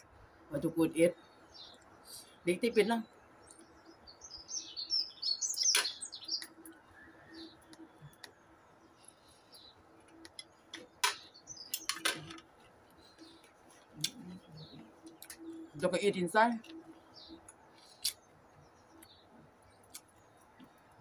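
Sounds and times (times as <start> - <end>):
small birds chirping: 0.0 - 21.0
sharp clicks: 10.1 - 12.5.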